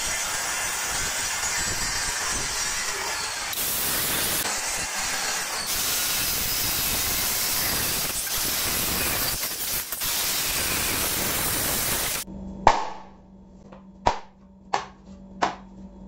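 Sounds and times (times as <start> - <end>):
circular saw cutting plywood: 0.0 - 12.2.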